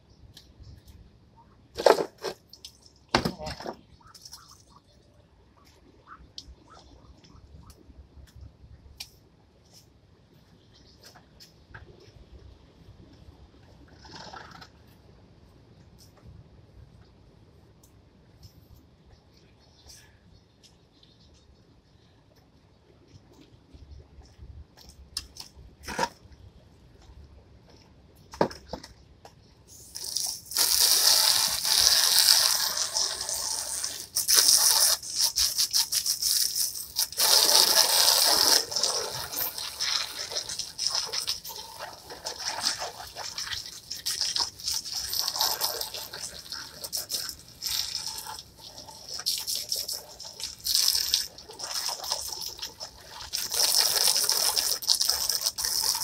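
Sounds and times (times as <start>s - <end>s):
garden hose spray hissing: 29.7s - 56.0s.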